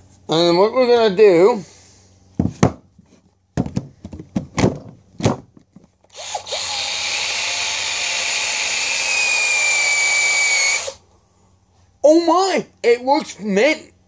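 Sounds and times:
handling knocks: 3.6s - 5.8s
cordless drill motor whine: 6.1s - 11.0s.

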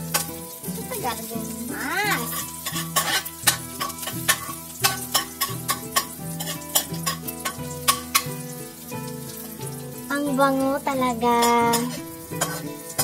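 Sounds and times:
onion and garlic sizzling in oil: 0.0s - 13.0s
metal spoon scraping a wok: 2.1s - 8.4s, 11.7s - 13.0s.

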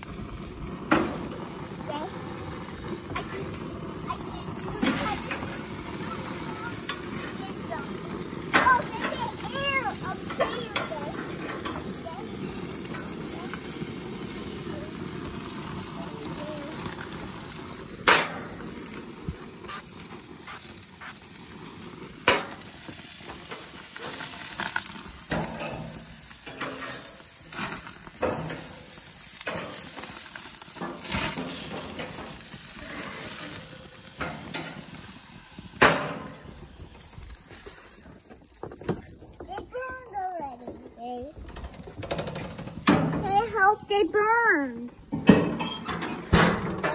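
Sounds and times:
meat sizzling on a grill: 0.0s - 40.1s, 41.0s - 46.9s
metal tongs clacking on grates: 10.3s - 11.9s, 25.3s - 27.1s, 34.2s - 34.9s.

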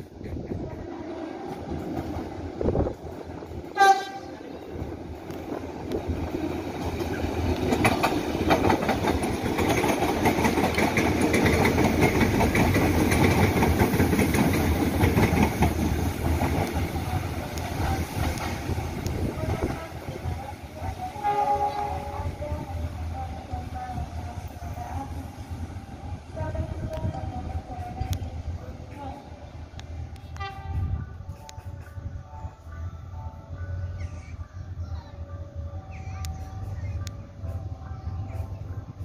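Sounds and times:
train wheels rumbling on rail: 0.0s - 39.0s
train horn blast: 3.7s - 4.5s, 20.9s - 22.7s, 30.2s - 31.3s.

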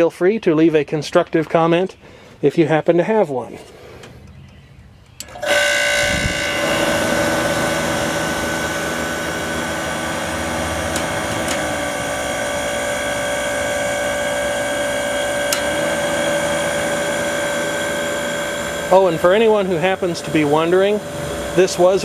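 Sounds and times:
dehumidifier humming and whining: 5.2s - 22.0s.

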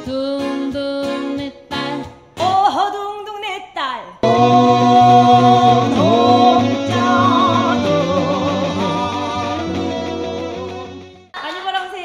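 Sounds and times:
guitar accompaniment: 0.0s - 3.2s, 4.2s - 11.3s
woman singing: 0.0s - 9.2s.

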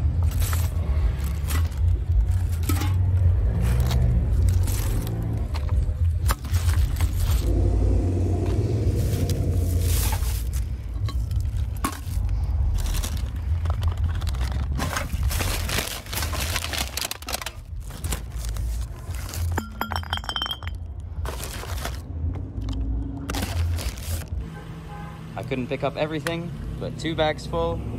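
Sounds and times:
steady low rumble: 0.0s - 24.4s
cans and bottles clinking in bag: 0.2s - 7.5s, 9.0s - 22.0s.

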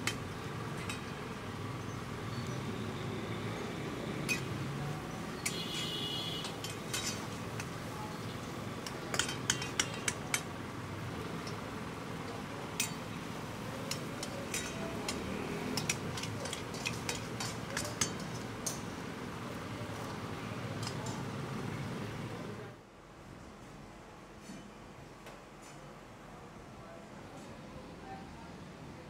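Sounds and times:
utensils and dishes clinking: 0.0s - 1.3s, 4.1s - 4.7s, 5.3s - 10.6s, 11.2s - 11.7s, 12.3s - 19.1s, 19.8s - 21.4s
busy restaurant din: 0.0s - 22.9s, 25.4s - 29.0s.

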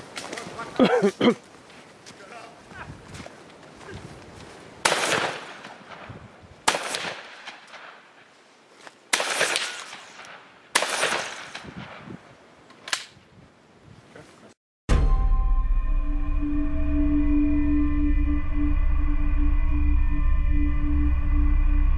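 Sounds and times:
rifle shots: 4.8s - 8.0s, 9.1s - 12.0s.

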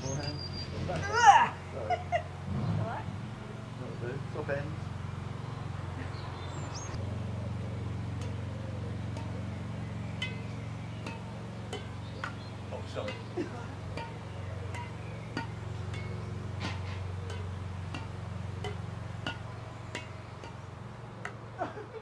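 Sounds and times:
bird chirping: 0.0s - 1.2s, 4.7s - 21.6s
steady low hum: 0.0s - 22.0s
rackets hitting shuttlecock: 0.1s - 2.4s, 6.9s - 22.0s.

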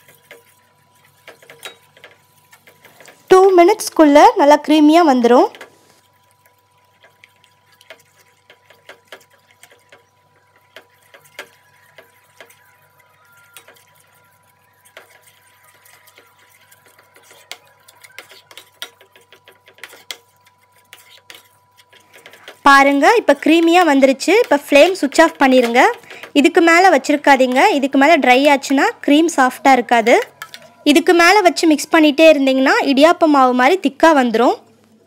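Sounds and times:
spoon scraping steel pan: 0.0s - 3.3s, 6.9s - 27.9s, 28.7s - 31.6s.

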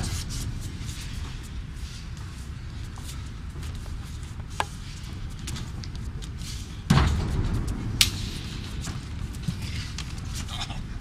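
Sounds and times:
sharp crack: 6.9s - 10.2s.

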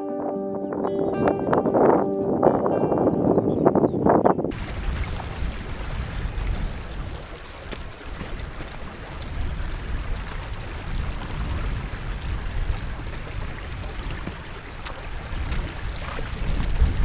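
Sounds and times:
wind buffeting microphone: 0.8s - 17.0s
stream trickling: 4.5s - 17.0s.

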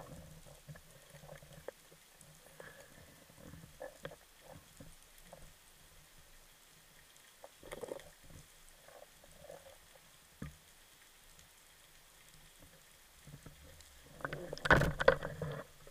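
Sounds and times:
underwater knocks and scrapes: 0.0s - 5.6s, 7.4s - 10.7s, 12.5s - 15.9s.

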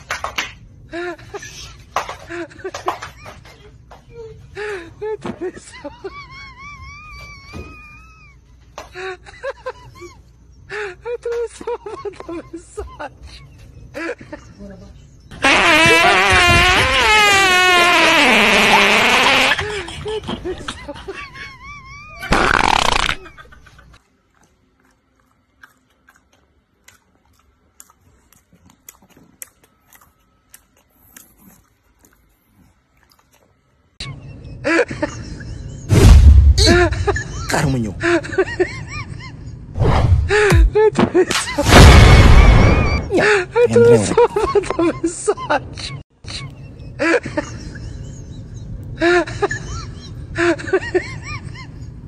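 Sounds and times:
dog chewing crunchy carrot: 24.0s - 33.8s
person speaking: 43.6s - 44.4s.

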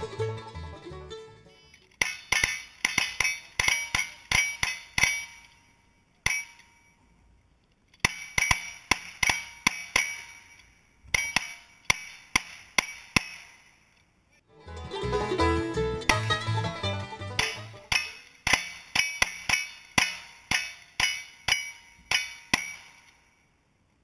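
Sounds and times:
steel target ringing: 1.6s - 7.2s, 8.0s - 14.0s, 17.4s - 23.6s.

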